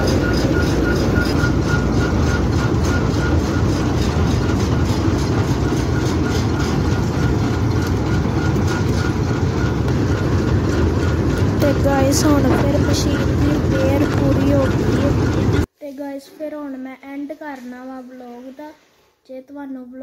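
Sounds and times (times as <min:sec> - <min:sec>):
combine harvester mechanical din: 0:00.0 - 0:15.7
regular ticking clatter: 0:00.0 - 0:15.7.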